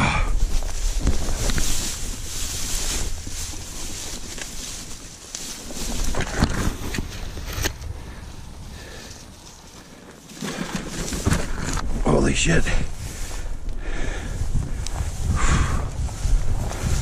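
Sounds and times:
rustling hiss: 0.0 - 17.0
wind rumbling on microphone: 0.0 - 17.0.

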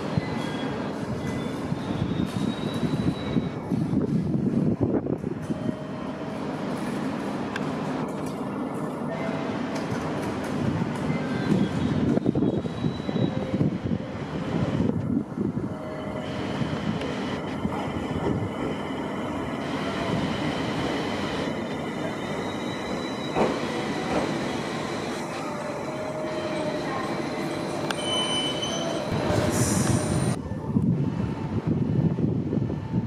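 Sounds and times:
wheels squealing on rails: 0.0 - 4.3, 11.0 - 15.0, 15.7 - 30.4
train rumbling: 0.0 - 33.0.

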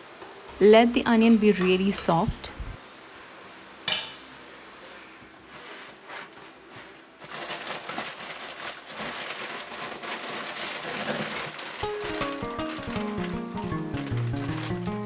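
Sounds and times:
plastic packets crinkling: 7.1 - 15.0
music: 11.8 - 15.0.

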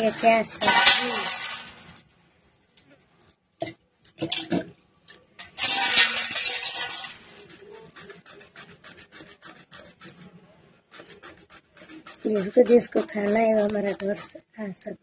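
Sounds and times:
blade rasping scrape: 5.5 - 15.0.

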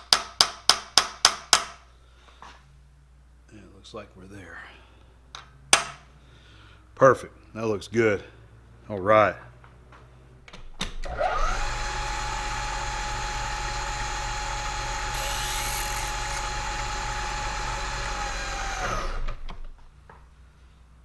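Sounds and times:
drill bit boring metal: 13.0 - 18.9
milling machine spindle running: 14.4 - 18.8.

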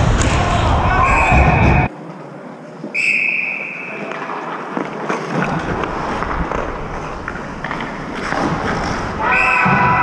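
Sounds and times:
referee's whistle: 3.0 - 4.0, 9.3 - 9.9
skates scraping on ice: 4.1 - 10.0.

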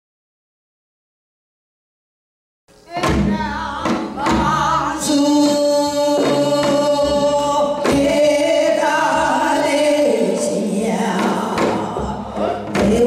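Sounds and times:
women singing together: 2.8 - 13.0.

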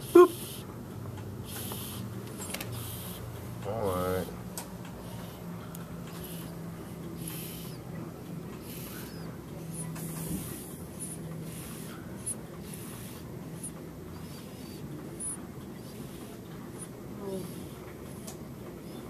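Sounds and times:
baby breathing softly: 5.0 - 7.9, 8.5 - 18.4.

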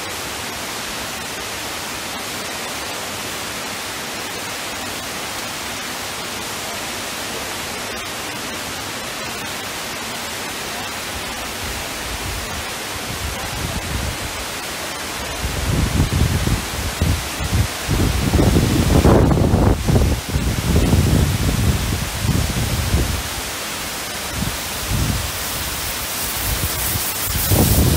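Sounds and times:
waterfall rushing hiss: 0.0 - 27.9.

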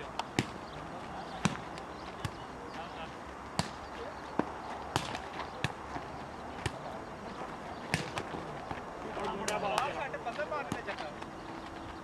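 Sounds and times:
low background murmur: 0.0 - 12.0
volleyball being struck: 3.6 - 3.8, 4.4 - 5.8, 7.9 - 8.3.

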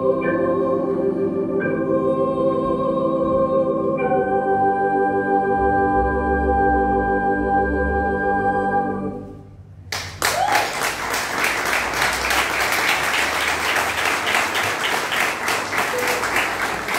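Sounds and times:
choir and keyboards holding chord: 0.0 - 9.7, 11.8 - 16.9
applause: 9.9 - 16.9.

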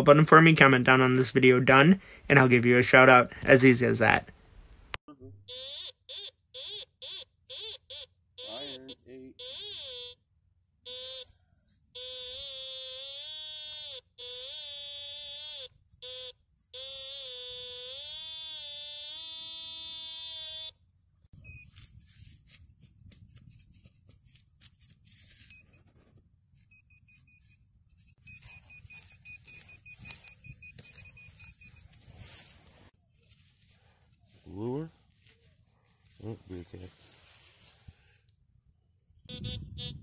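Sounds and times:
metal detector warbling tone: 5.3 - 10.2, 10.9 - 11.4, 12.0 - 20.8, 28.2 - 32.4, 39.3 - 40.0
digging in turf: 21.4 - 38.2.

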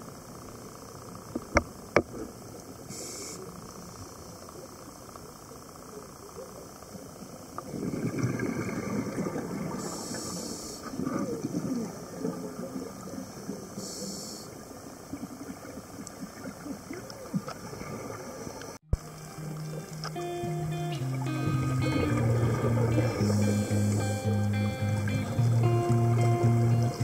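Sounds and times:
underwater bubbles gurgling: 5.9 - 27.0
scuba regulator hissing: 21.8 - 25.0.

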